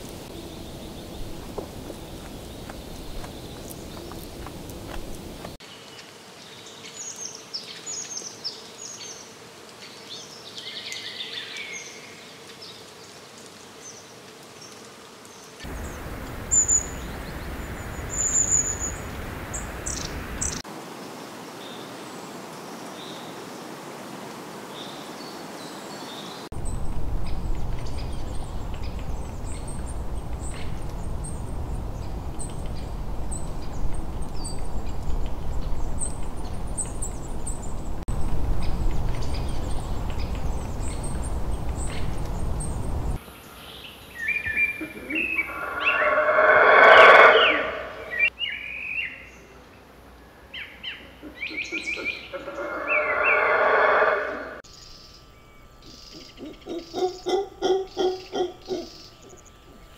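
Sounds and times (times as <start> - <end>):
steady low rumble: 26.6 - 43.2.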